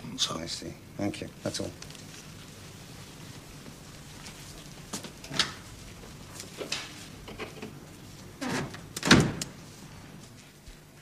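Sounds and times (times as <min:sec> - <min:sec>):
door shutting thud: 0:08.4 - 0:09.5.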